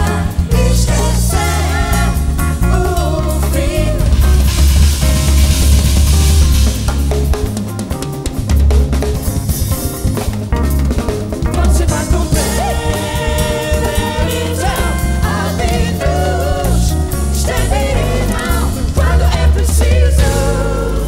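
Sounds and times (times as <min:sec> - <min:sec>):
backing vocals: 0:00.0 - 0:04.5, 0:11.5 - 0:21.0
lead singer: 0:00.0 - 0:05.1, 0:11.4 - 0:21.0
heavy bass line: 0:00.0 - 0:21.0
live band playing: 0:00.0 - 0:21.0.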